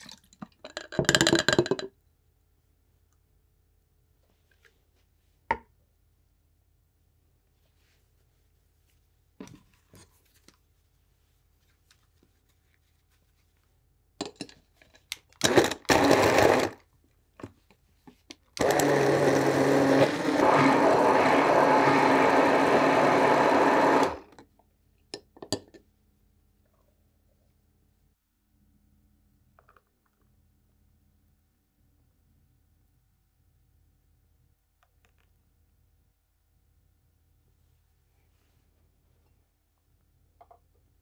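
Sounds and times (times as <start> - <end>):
stick blender crushing ice: 15.4 - 16.8, 18.6 - 24.3.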